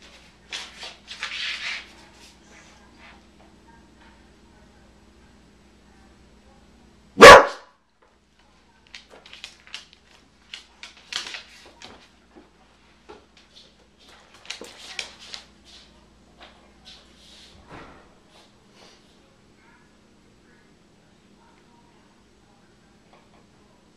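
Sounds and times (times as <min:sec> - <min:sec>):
dog moving on hardwood floor: 0:00.0 - 0:02.5, 0:08.9 - 0:18.0
dog barking: 0:07.2 - 0:07.7.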